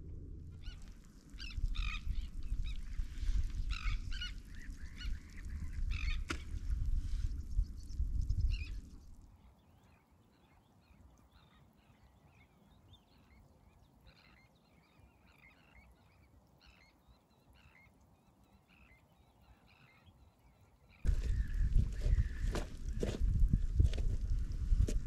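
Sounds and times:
distant birds calling: 0.0s - 9.2s, 14.2s - 23.9s
wind rumbling on microphone: 0.0s - 9.3s, 21.0s - 25.0s.

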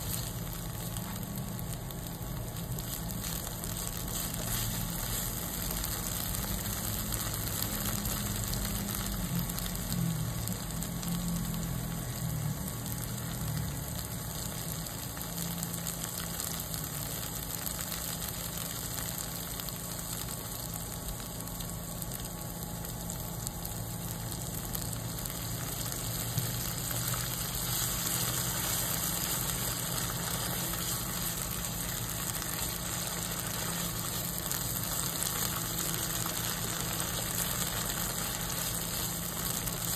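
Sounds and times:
curry paste sizzling in oil: 0.0s - 39.9s.

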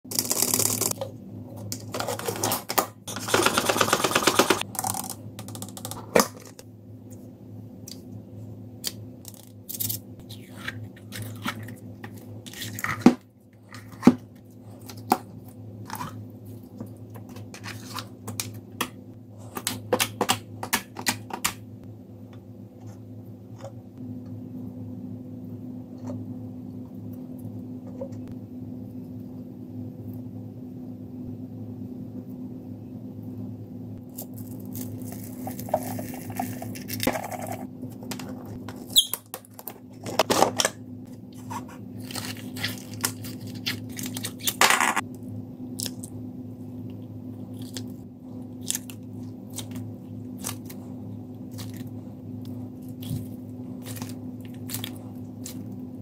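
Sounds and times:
steady low hum: 0.1s - 56.0s
slime squishing: 48.6s - 55.8s.

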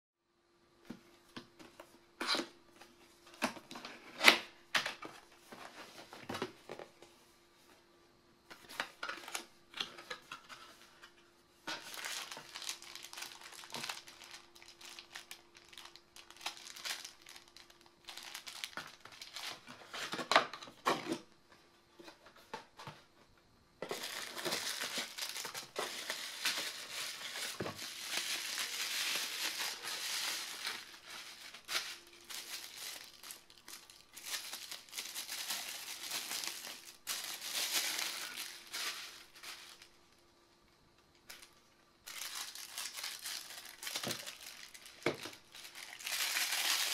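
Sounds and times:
faint steady hum: 0.2s - 46.9s
paper and plastic rustling: 8.5s - 21.2s, 23.8s - 40.0s, 41.3s - 46.9s
bubble wrap crinkling: 11.7s - 20.0s, 23.8s - 40.0s, 41.3s - 46.9s.

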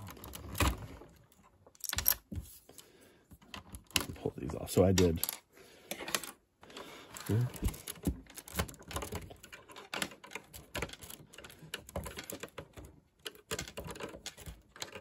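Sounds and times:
plastic bricks clicking and tapping: 7.1s - 15.0s.

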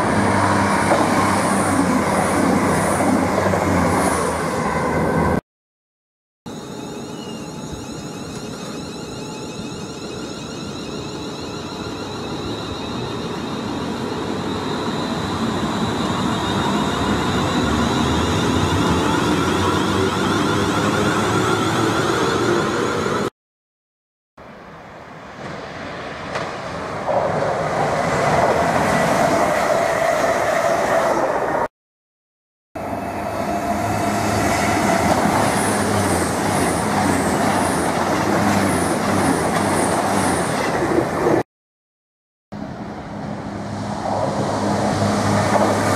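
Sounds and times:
electric train passing: 0.0s - 5.4s, 6.5s - 23.3s, 24.8s - 31.7s, 32.8s - 41.4s, 42.6s - 45.9s
wheel and rail noise: 0.0s - 5.4s, 6.5s - 23.3s, 24.8s - 31.7s, 32.8s - 41.4s, 42.6s - 45.9s
steady high tone: 6.5s - 22.9s.

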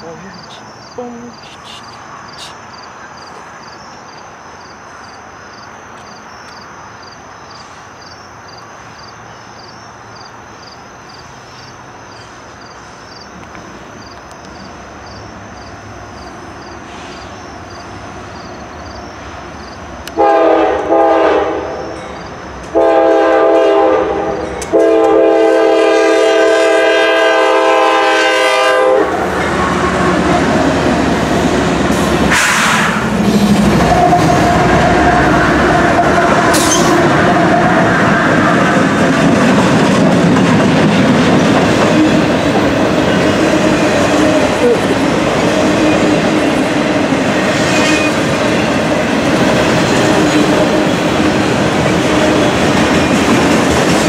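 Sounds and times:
crickets chirping: 0.0s - 54.0s
train air horn blasts: 20.2s - 21.8s, 22.7s - 30.6s, 32.3s - 33.0s
locomotive engine and wheel noise: 33.0s - 54.0s.

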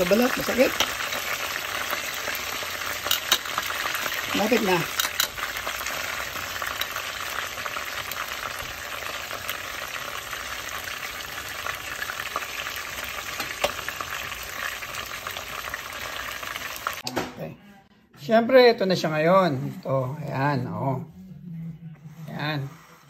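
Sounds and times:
fish deep-frying in oil: 0.0s - 17.1s.

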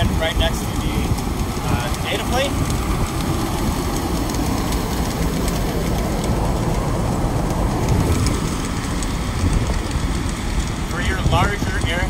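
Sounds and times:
refrigeration equipment running: 0.0s - 12.0s.

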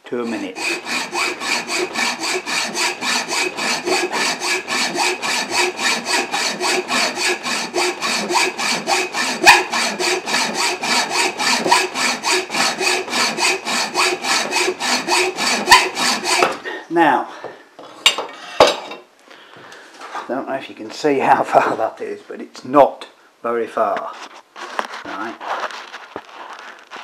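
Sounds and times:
hacksaw cutting through metal: 0.0s - 16.6s.

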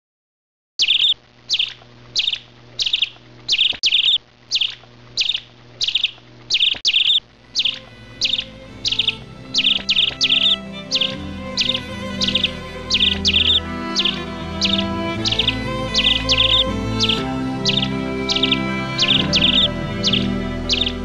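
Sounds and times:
bird chirping: 0.8s - 21.0s
soft music: 7.3s - 21.0s.

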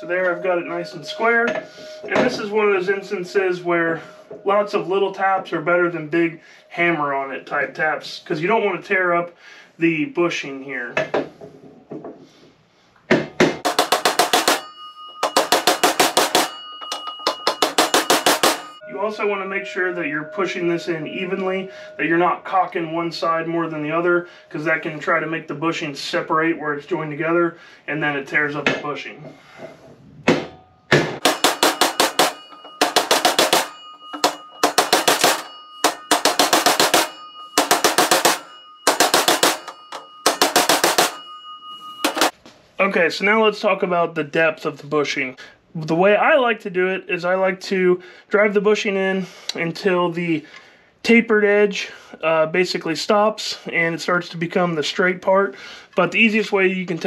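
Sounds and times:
metallic ringing: 0.0s - 7.0s, 13.6s - 25.2s, 30.4s - 42.4s
hammer tapping on metal socket: 13.6s - 14.6s, 31.2s - 41.2s.

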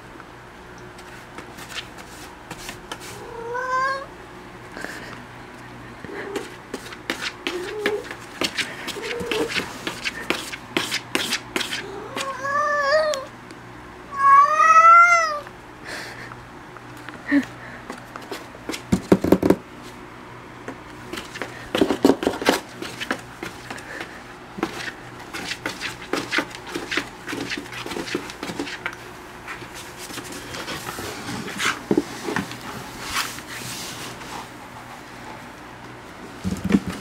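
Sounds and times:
knocks against cardboard: 18.9s - 19.6s.

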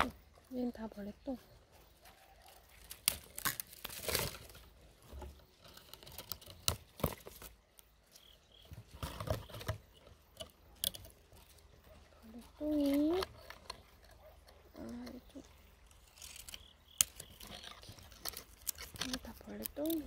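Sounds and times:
twigs and leaves crackling: 0.0s - 20.0s.

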